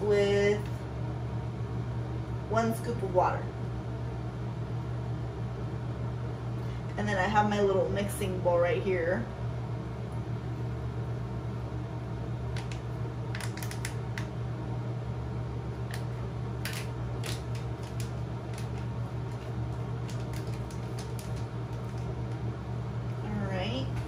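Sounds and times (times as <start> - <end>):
steady low hum: 0.0 - 24.0
powder sachet crinkling: 16.7 - 22.4.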